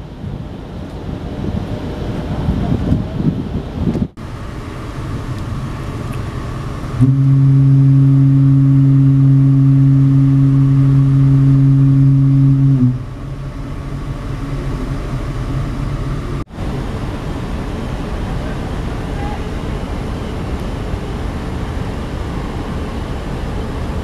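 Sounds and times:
wind and ship rumble: 0:00.0 - 0:24.0
ship's horn blast: 0:05.6 - 0:16.4, 0:18.5 - 0:19.6.

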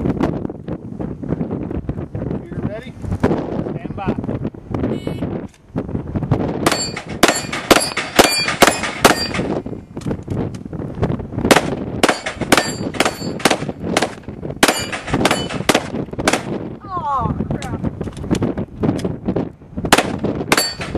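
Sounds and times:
pistol shots: 0:06.6 - 0:09.6, 0:11.5 - 0:16.6, 0:19.9 - 0:20.9
steel plates ringing: 0:06.7 - 0:09.5, 0:12.1 - 0:13.4, 0:14.7 - 0:15.6, 0:20.5 - 0:20.9.

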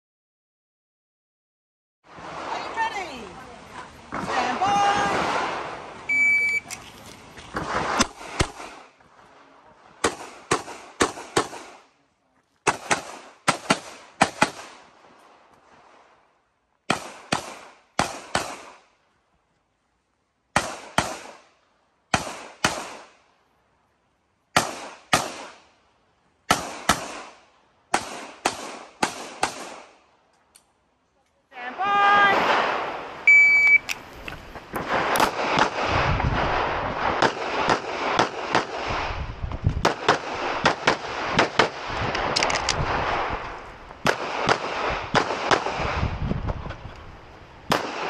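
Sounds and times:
shot timer beep: 0:06.1 - 0:06.7, 0:33.3 - 0:33.9.

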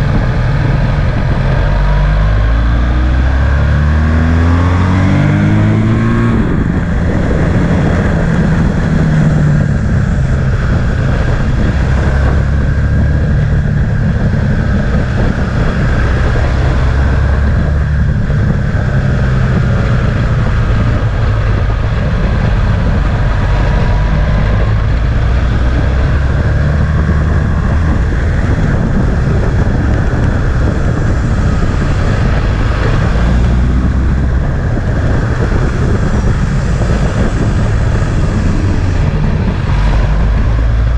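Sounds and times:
motorcycle engine running: 0:00.0 - 0:40.9
wind noise on microphone: 0:00.0 - 0:40.9.

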